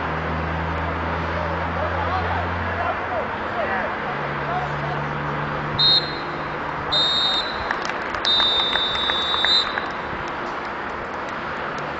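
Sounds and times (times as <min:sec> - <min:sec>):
referee's whistle blasts: 0:05.8 - 0:10.0.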